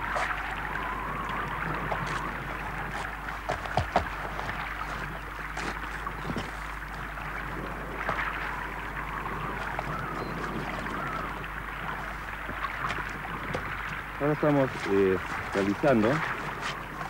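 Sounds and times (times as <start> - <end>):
constant low hum: 0.0 - 17.0
hands handling bark: 14.4 - 17.0.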